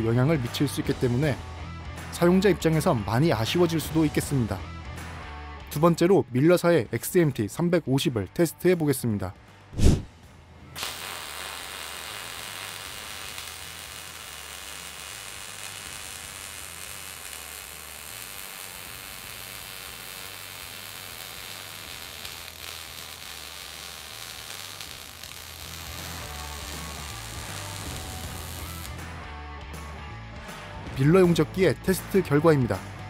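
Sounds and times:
welding arc crackling: 0:10.8 - 0:29.1.

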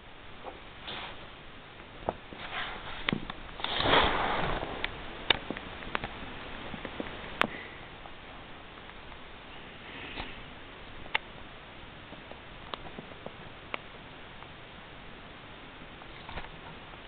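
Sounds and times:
rustling: 0:00.4 - 0:10.5.

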